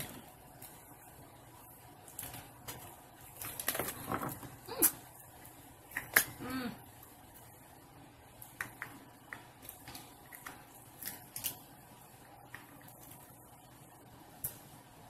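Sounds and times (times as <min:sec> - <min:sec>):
crab shells clicking and cracking: 0:02.0 - 0:06.4, 0:08.4 - 0:11.8.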